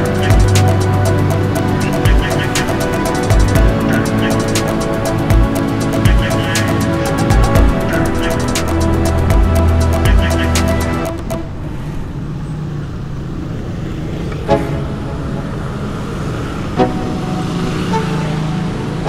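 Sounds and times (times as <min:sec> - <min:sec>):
scooter engine running: 0:00.0 - 0:11.2
background music: 0:00.0 - 0:11.8, 0:14.4 - 0:19.0
road and wind noise: 0:00.0 - 0:19.0.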